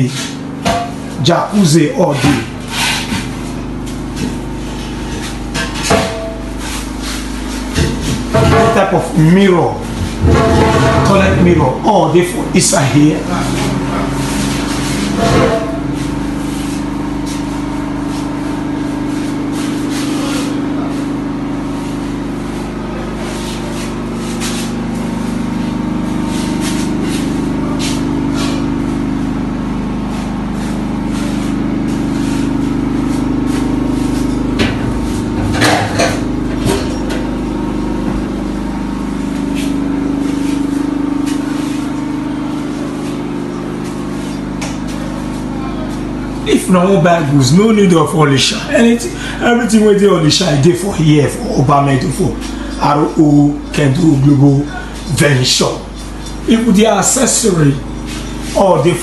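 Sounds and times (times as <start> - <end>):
machine hum: 0.0 - 59.0
loud clatter: 10.1 - 11.6.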